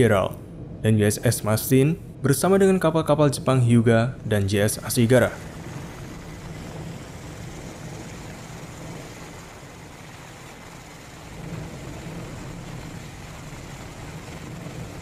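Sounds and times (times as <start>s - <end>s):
low engine rumble: 0.0s - 15.0s
wind hiss: 3.4s - 15.0s.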